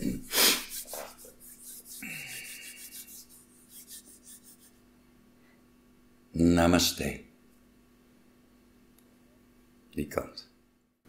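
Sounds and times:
hands rubbing together: 0.0 - 4.8.

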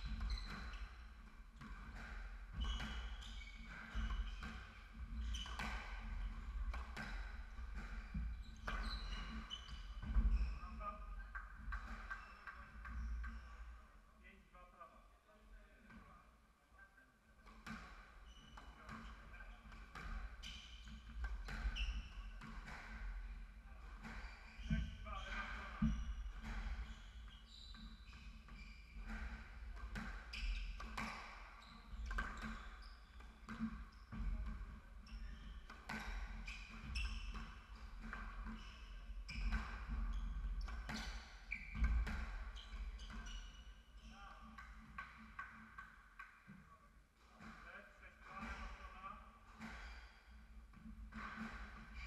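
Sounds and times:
shoes squeaking on wooden floor: 0.0 - 1.2, 1.9 - 13.6, 18.2 - 45.8.

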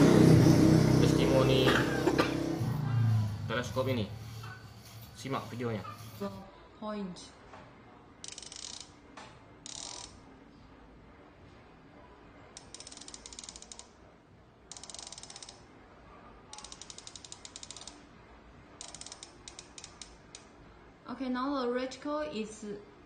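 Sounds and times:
scope turret clicking: 8.2 - 9.0, 9.6 - 10.2, 12.6 - 14.0, 14.7 - 15.6, 16.5 - 18.0, 18.8 - 20.5.

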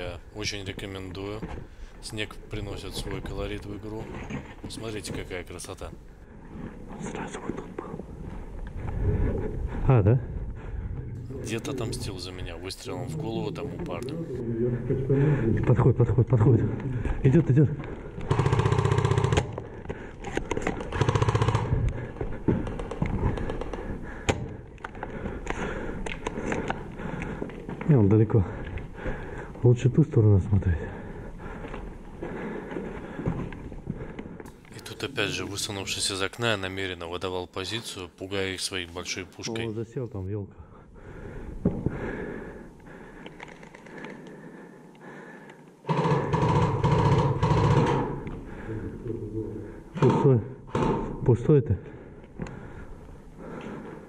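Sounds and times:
airsoft gun full-auto burst: 18.3 - 19.6, 20.9 - 21.8, 45.9 - 48.0.

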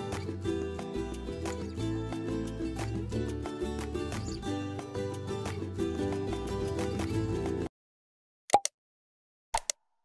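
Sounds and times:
background music: 0.0 - 7.7.

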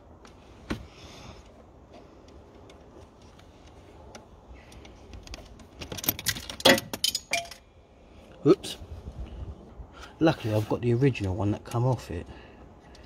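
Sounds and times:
metal nut bouncing and clattering: 5.3 - 7.7.

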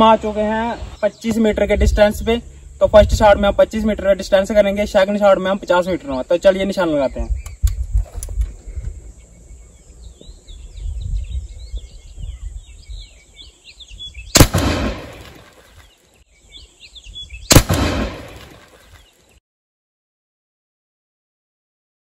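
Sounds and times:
birds chirping faintly: 0.0 - 19.4
shotgun shots: 14.4 - 15.6, 17.5 - 19.0.

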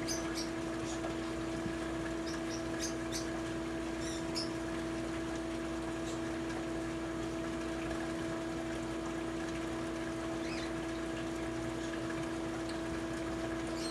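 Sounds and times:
machine hum with watery hiss: 0.0 - 13.9.

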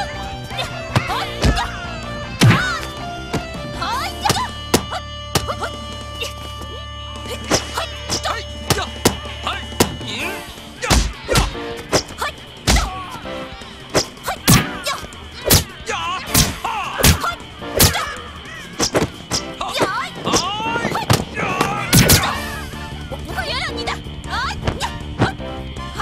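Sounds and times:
punch and kick hits: 10.8 - 12.1, 12.7 - 12.9.

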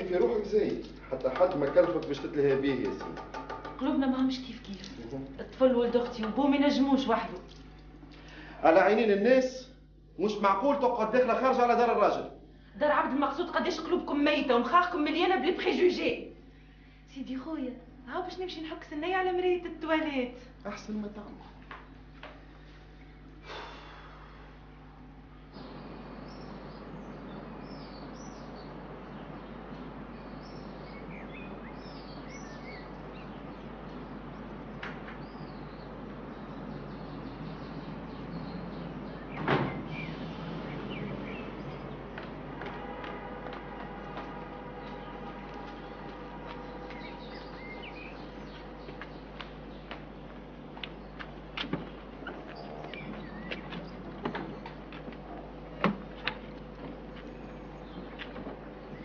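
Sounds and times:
small birds chirping: 0.0 - 8.6, 21.1 - 59.0
steady background hiss: 0.0 - 59.0
loud knocks: 1.2 - 4.0, 39.0 - 40.2.

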